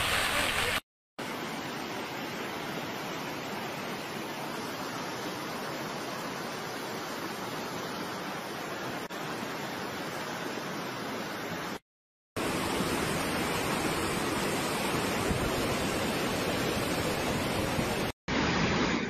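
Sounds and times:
floodwater rushing: 0:00.0 - 0:00.8, 0:12.4 - 0:19.0.

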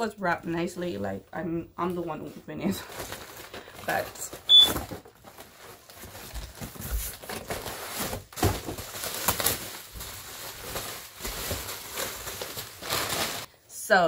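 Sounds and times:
bubble wrap and cardboard crinkling: 0:02.2 - 0:13.5.

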